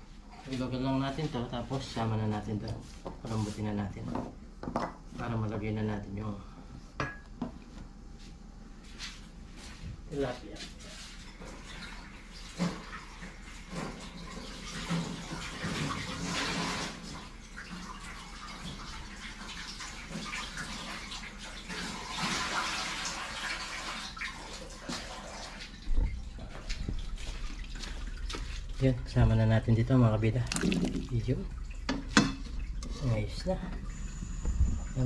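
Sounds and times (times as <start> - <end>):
water sloshing in a pot: 9.5 - 35.0.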